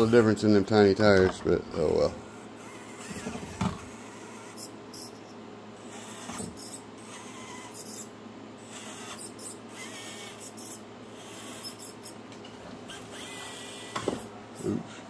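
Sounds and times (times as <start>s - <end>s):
small electric motor whining: 1.8s - 15.0s
short high squeaks: 2.6s - 12.2s, 12.9s - 14.7s.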